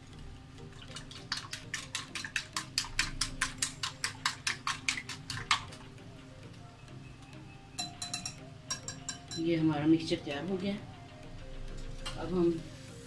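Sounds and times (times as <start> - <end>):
whisk clicking against glass bowl: 1.0 - 5.7, 7.8 - 9.4.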